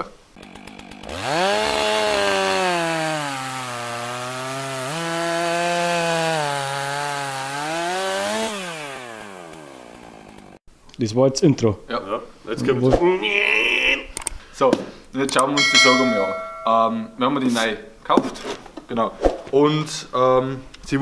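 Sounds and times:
chainsaw engine revving: 0.4s - 10.6s.

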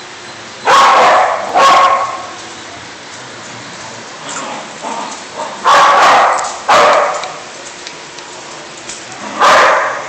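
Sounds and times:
dog barking: 0.7s - 2.3s, 5.6s - 7.4s, 9.4s - 10.0s.

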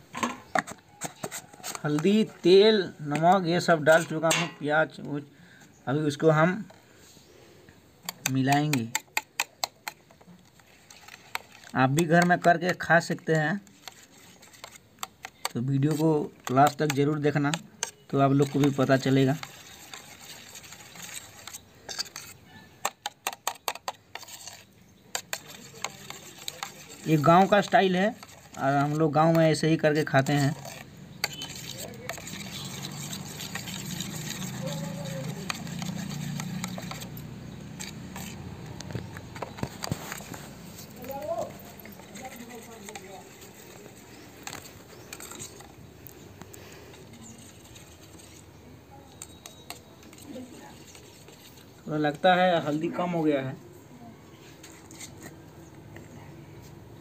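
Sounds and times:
spoon beating eggs in bowl: 0.5s - 4.6s, 8.0s - 51.8s
spoon clinking against metal bowl: 4.0s - 4.6s, 49.1s - 49.9s.

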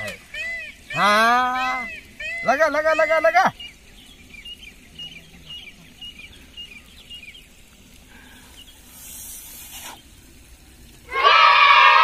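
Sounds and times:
small birds chirping: 0.0s - 12.0s
hissing draw of breath: 8.0s - 10.2s.

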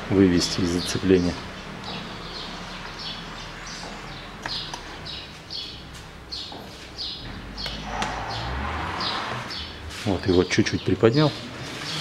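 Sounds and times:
bird chirping: 0.2s - 12.0s.

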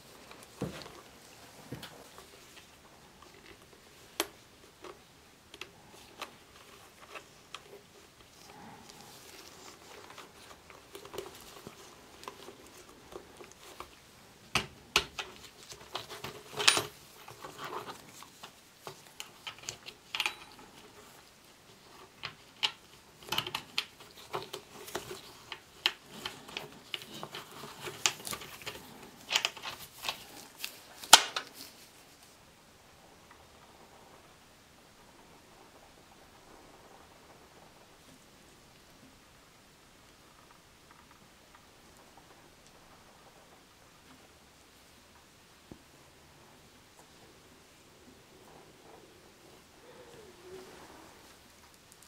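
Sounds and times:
helmet liner clicks and rustling: 0.0s - 21.2s, 21.8s - 32.0s.

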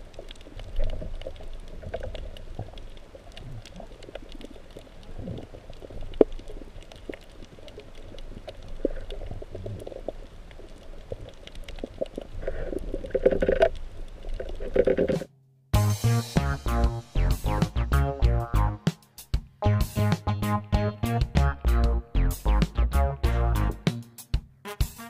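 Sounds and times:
underwater moving water noise: 0.0s - 15.3s
faint crackling clicks: 0.0s - 15.5s.

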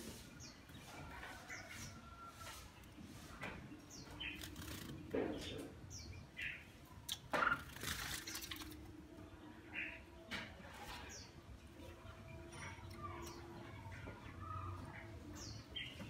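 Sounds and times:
bird splashing in water: 7.1s - 8.9s.

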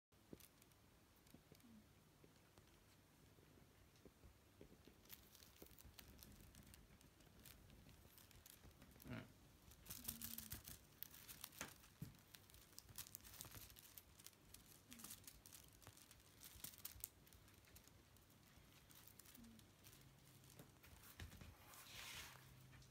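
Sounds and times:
kittens' claws scratching fabric: 4.7s - 22.8s.

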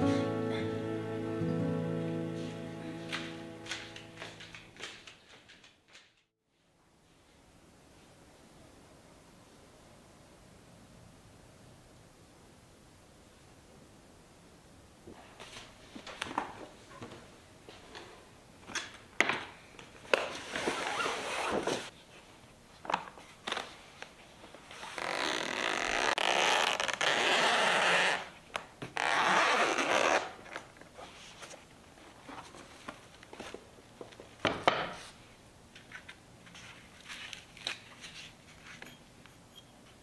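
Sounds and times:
zipper pulled open: 20.5s - 21.9s, 24.7s - 28.4s, 29.0s - 30.4s.

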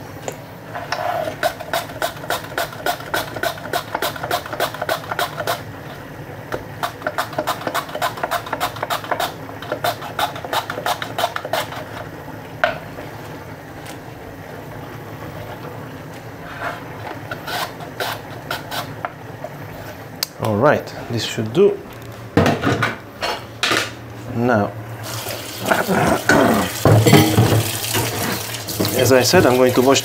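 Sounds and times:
potato slicing on mandoline: 1.3s - 5.6s, 6.8s - 12.0s.

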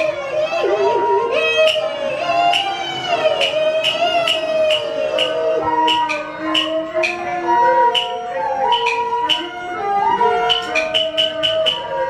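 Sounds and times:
melody instrument holding notes: 0.0s - 12.0s
sharp percussion strikes: 1.5s - 12.0s.

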